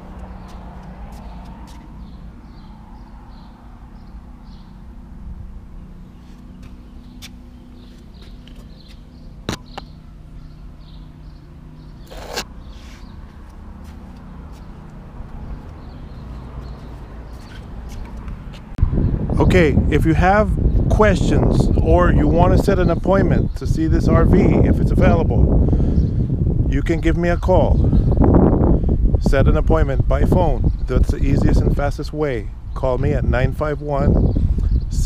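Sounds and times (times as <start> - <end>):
low mechanical hum: 0.0 - 26.7
bird chirps: 0.1 - 4.9, 5.8 - 13.6, 14.2 - 18.2.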